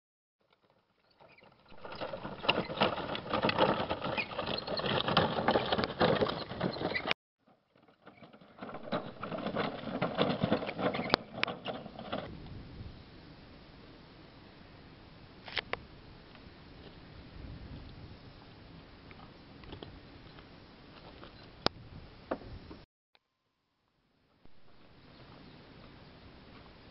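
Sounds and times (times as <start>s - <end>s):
cart wheels crunching on gravel: 0.5s - 12.3s.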